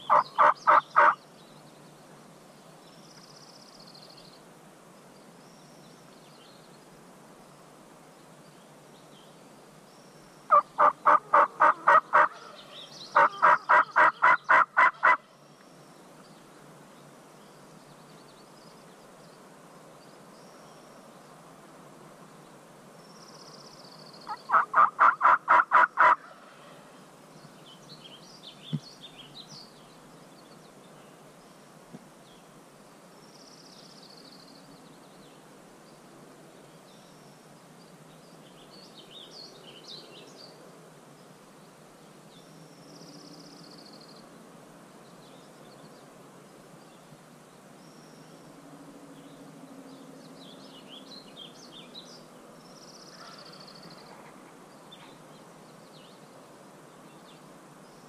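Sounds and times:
turkey gobbling: 0.1s - 1.2s, 10.5s - 12.3s, 13.2s - 15.2s, 24.3s - 26.2s.

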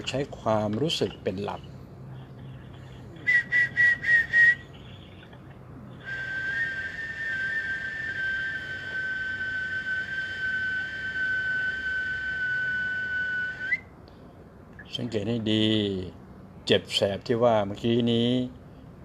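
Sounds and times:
person whistling high notes: 3.2s - 4.8s, 6.0s - 13.9s.

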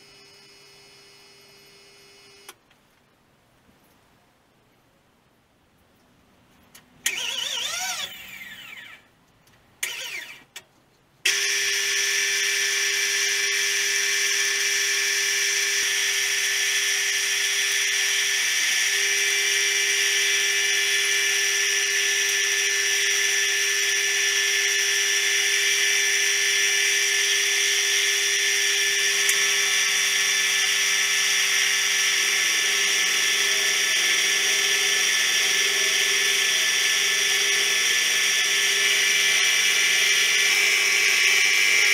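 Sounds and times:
milling machine whine: 0.0s - 2.6s, 11.3s - 41.9s.

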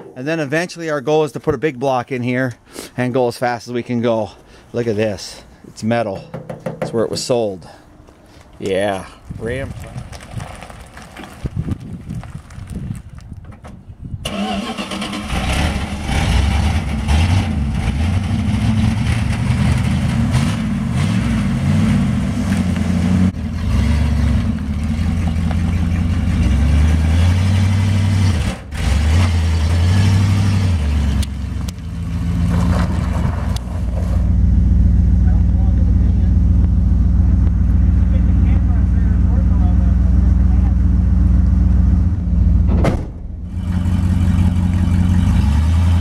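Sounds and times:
pickup truck engine revving: 14.2s - 46.0s.

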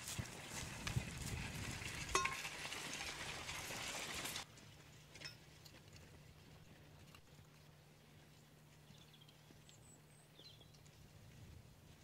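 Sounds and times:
plough crackling through soil: 0.0s - 7.6s.

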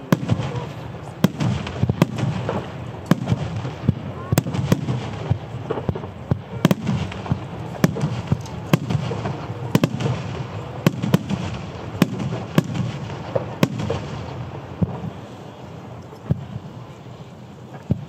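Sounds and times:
firework shells bursting: 0.1s - 15.2s.

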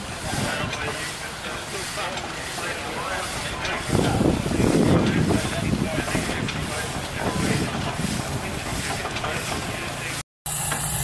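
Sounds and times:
steam traction engine running: 0.0s - 11.0s
wind noise on microphone: 3.4s - 9.8s.

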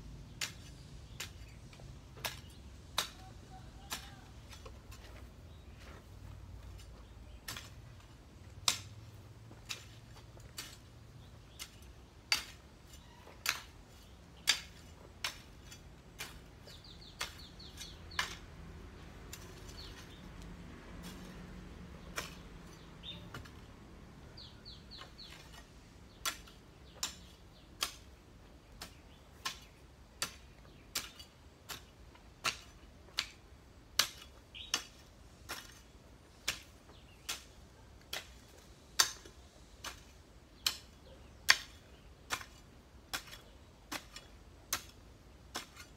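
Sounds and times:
hoe chopping into soil: 0.3s - 23.7s, 24.4s - 45.9s
small bird chirping: 11.2s - 14.6s, 16.6s - 18.5s, 19.3s - 20.3s, 22.0s - 27.8s, 34.5s - 35.0s.

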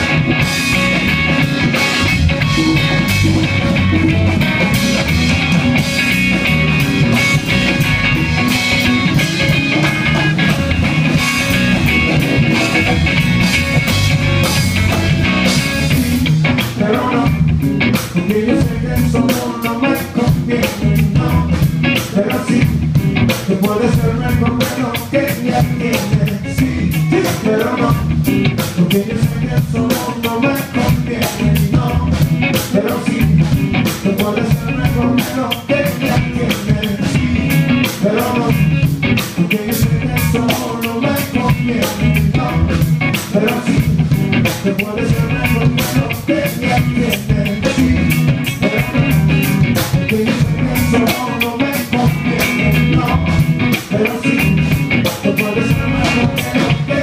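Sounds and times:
live rock band playing: 0.0s - 57.0s
steady drum beat: 0.0s - 57.0s
person singing: 16.6s - 57.0s.

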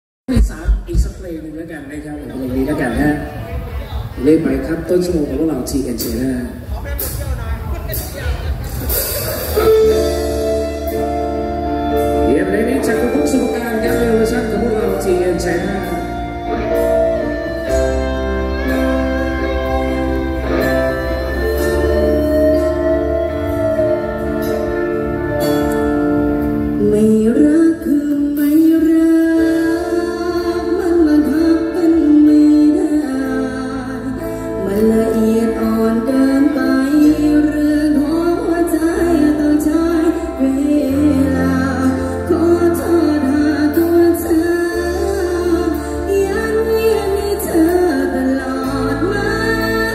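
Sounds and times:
live band playing chords: 0.3s - 49.9s
held bass notes: 2.5s - 49.9s
woman singing: 26.7s - 49.9s.

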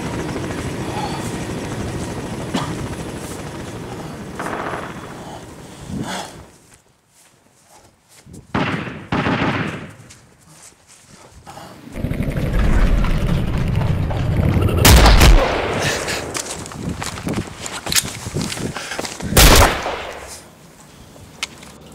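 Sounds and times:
gunfire bursts: 8.5s - 10.0s, 14.7s - 16.4s, 19.4s - 20.3s.

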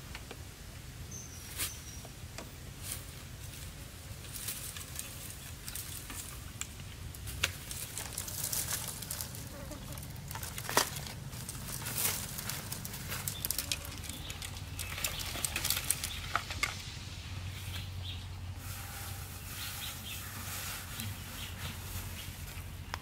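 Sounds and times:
bamboo leaves rustling and crackling: 0.0s - 23.0s.

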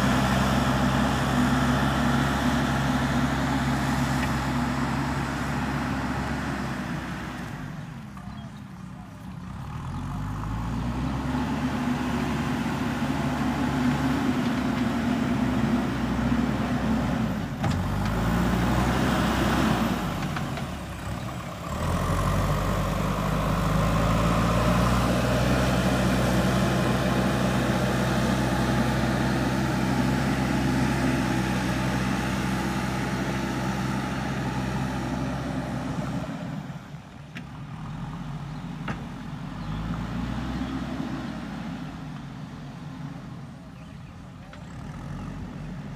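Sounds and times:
diesel engine revving: 0.0s - 45.9s.

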